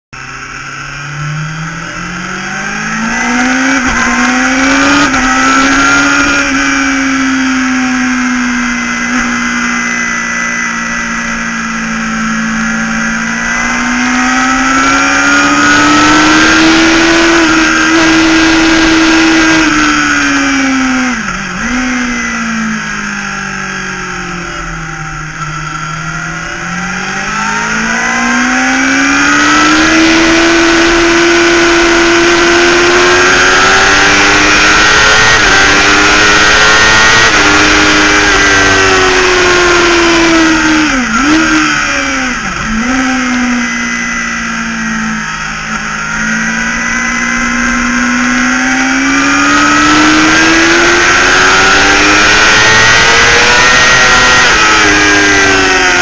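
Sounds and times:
motorcycle engine revving: 0.2 - 56.0.

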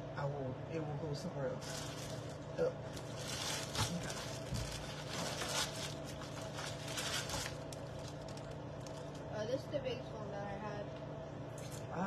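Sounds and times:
plastic bag rustling: 1.6 - 9.3.

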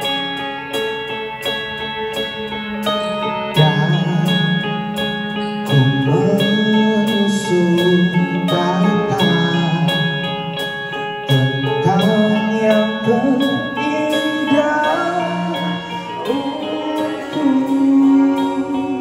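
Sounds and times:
live rock band playing: 0.0 - 19.0
person singing lead vocal: 2.8 - 19.0.

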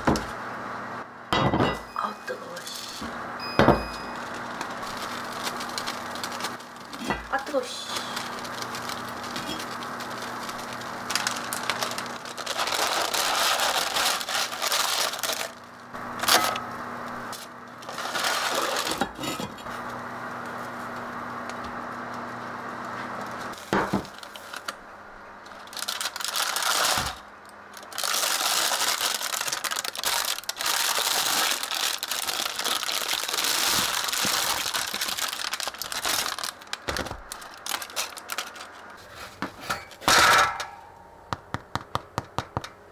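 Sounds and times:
low steady hum: 0.0 - 26.4, 33.8 - 41.9
paper towels rustling: 4.2 - 15.7, 17.8 - 19.0, 28.0 - 39.6.

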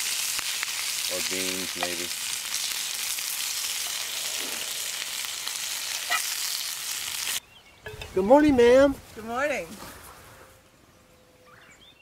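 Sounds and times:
meat sizzling in a skillet: 0.0 - 7.4.

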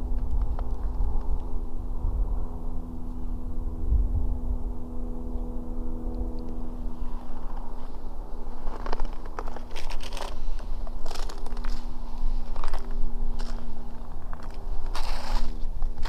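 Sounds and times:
steady low hum: 0.0 - 16.0
footsteps crunching in snow: 6.9 - 16.0.

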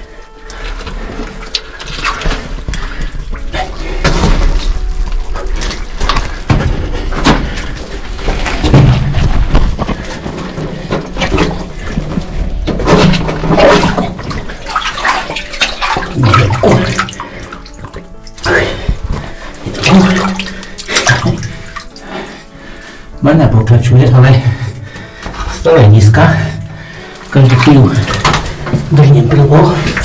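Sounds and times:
splashing through shallow water: 8.0 - 19.0, 19.6 - 22.2.

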